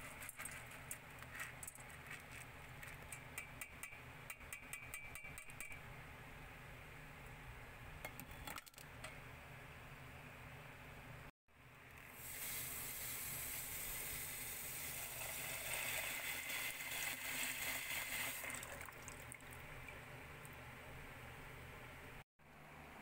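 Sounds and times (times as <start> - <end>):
water pouring into pot of beans: 14.8 - 19.7.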